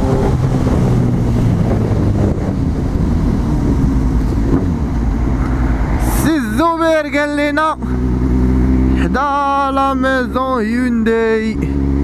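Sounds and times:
motorcycle engine running: 0.0 - 5.8, 7.2 - 12.0
wind noise on microphone: 0.0 - 6.3.

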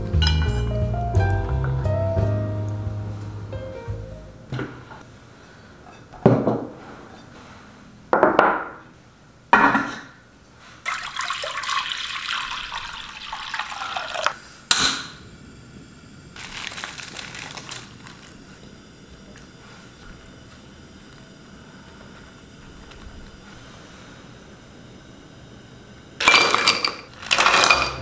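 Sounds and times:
liquid pouring into a pot: 10.8 - 14.4.

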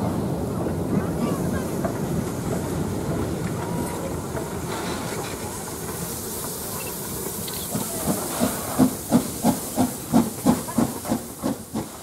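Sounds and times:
steam hissing: 0.2 - 12.0
steam blowing from drain cocks: 4.5 - 12.0.

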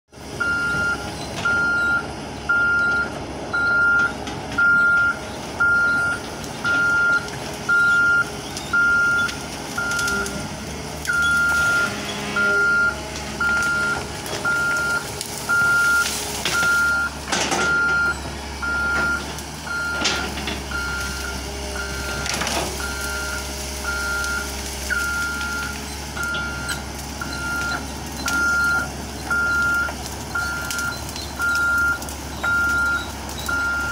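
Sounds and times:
diesel engine running: 0.1 - 33.9.

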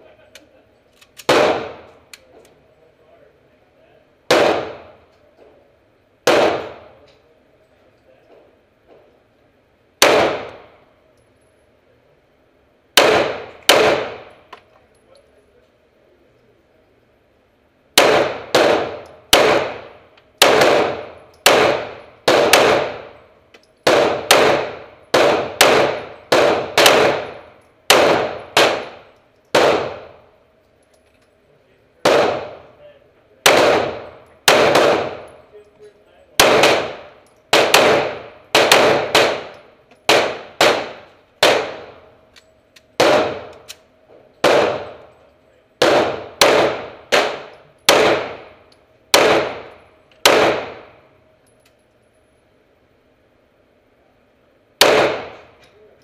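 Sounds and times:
pistol shots echoing indoors: 6.2 - 7.0, 10.0 - 10.8, 12.9 - 14.6, 17.9 - 30.3, 33.4 - 35.5, 36.4 - 42.1, 43.0 - 45.2, 45.8 - 51.0, 54.8 - 55.7.

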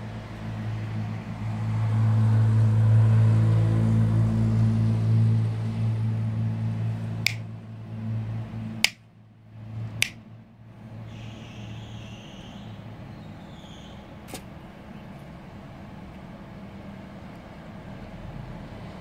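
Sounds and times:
vehicle engine humming: 0.0 - 19.0
finger snaps: 7.2 - 7.4.

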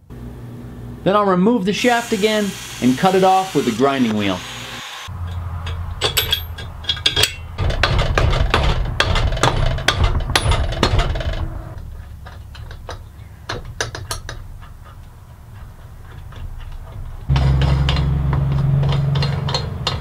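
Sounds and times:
steel parts clinking: 5.2 - 20.0.

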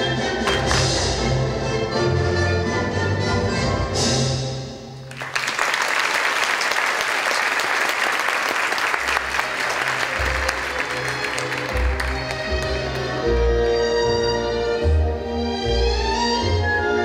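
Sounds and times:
audience applauding: 0.0 - 1.0, 5.1 - 13.3
low orchestral notes: 0.0 - 5.1, 9.2 - 17.0.

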